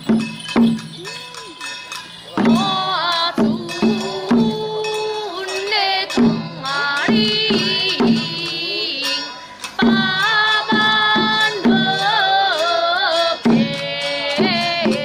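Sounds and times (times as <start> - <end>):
sustained bending melody: 0.0 - 11.8
regular drum beat: 0.0 - 15.0.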